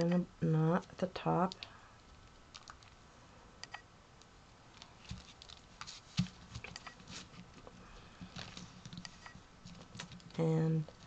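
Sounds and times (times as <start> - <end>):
twine rustling and scratching: 4.7 - 11.0.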